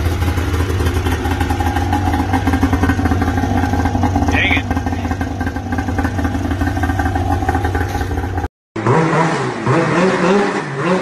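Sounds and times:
snowmobile engine running: 0.0 - 8.5
snowmobile engine revving: 0.9 - 11.0.

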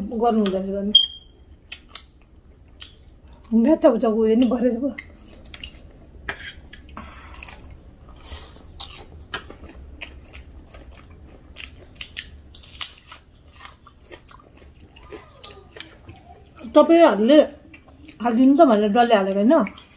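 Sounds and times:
person chewing crunchy snack: 5.2 - 16.7.

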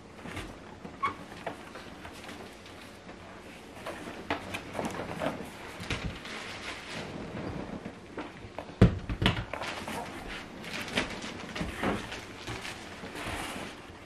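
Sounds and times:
cardboard knocks and scrapes: 3.7 - 14.0
cardboard box rustling: 9.5 - 14.0.

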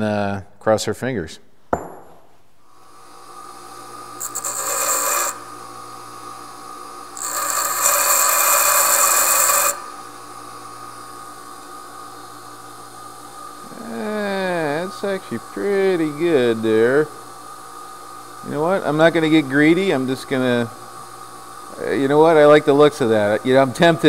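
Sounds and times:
bench grinder running: 3.2 - 17.6, 18.2 - 24.0
harsh grinding of steel: 4.2 - 5.6, 7.2 - 10.0.

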